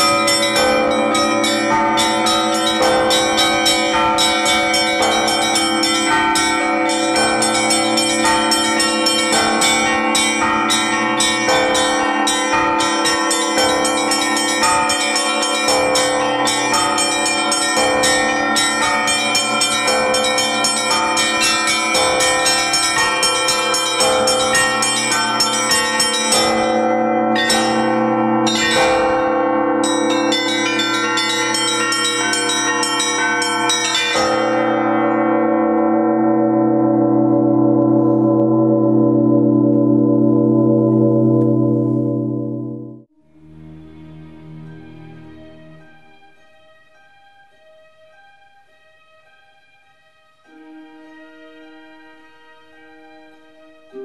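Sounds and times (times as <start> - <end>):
small bells ringing rapidly: 0.0 - 35.3
large bells humming: 0.0 - 48.4.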